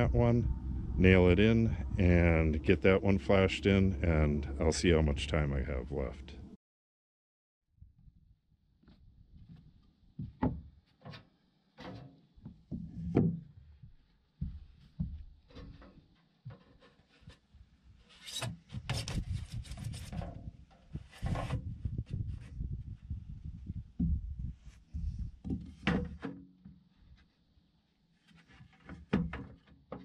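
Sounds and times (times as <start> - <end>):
scraping and rubbing: 15.5 - 22.6.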